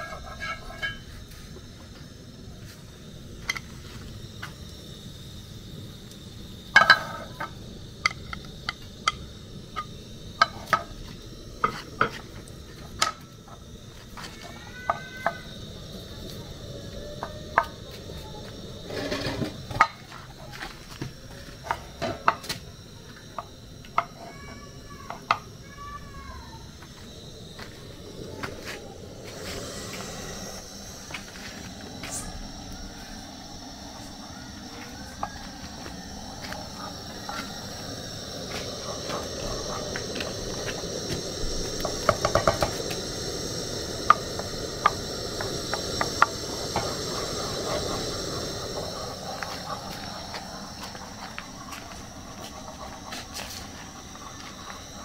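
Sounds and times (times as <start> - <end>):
scrape of utensil: 0.0 - 1.0
pots and utensils clinking: 0.0 - 1.2, 6.7 - 9.2.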